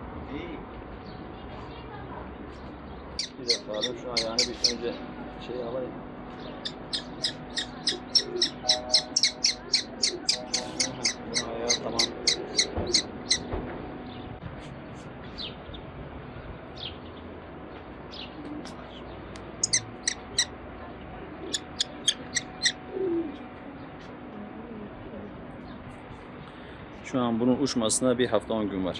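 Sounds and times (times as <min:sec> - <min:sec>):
young kestrel calling shrill notes: 0:03.2 - 0:04.8, 0:06.6 - 0:13.5, 0:19.6 - 0:20.5, 0:21.5 - 0:22.8.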